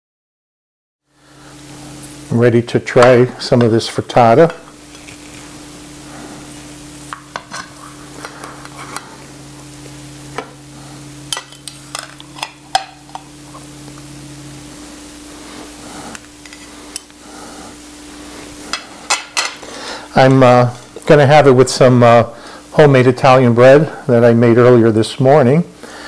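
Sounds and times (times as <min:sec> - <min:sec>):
steady low hum: 0:01.1 - 0:26.0
knife and fork scraping a plate: 0:07.4 - 0:09.1.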